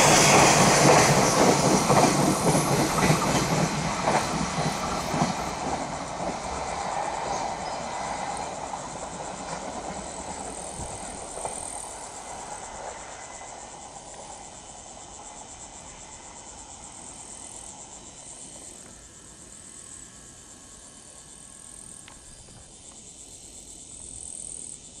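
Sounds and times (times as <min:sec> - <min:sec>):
freight train wagons rumbling: 0:00.0 - 0:17.8
insects chirring: 0:00.0 - 0:25.0.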